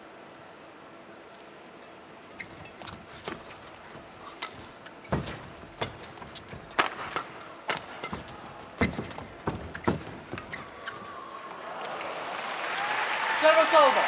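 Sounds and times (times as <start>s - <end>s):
rackets striking shuttlecock: 4.2s - 10.6s.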